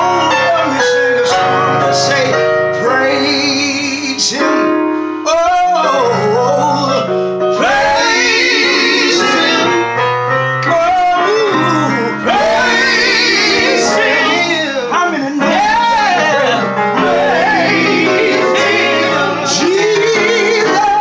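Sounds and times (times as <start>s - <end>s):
men's vocal group singing in harmony: 5.6s - 10.0s, 10.6s - 21.0s.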